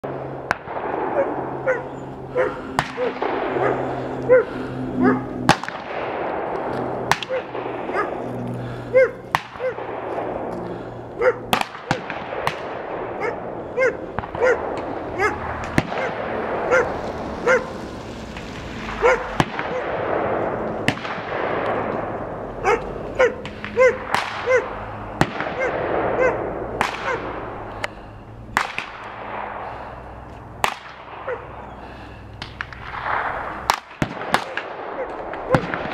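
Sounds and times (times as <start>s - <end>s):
sharp gunshots: 0.0s - 35.9s
dog barking: 1.2s - 5.3s, 7.2s - 8.2s, 8.9s - 9.8s, 11.2s - 11.5s, 13.2s - 14.6s, 15.2s - 15.4s, 16.7s - 17.7s, 19.0s - 19.8s, 22.6s - 24.8s, 25.6s - 26.4s, 31.2s - 31.5s.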